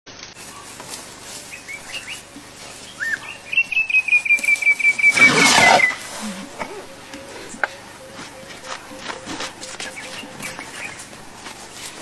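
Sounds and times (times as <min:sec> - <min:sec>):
bird chirping and trilling: 0:03.0 - 0:06.1, 0:06.7 - 0:11.1.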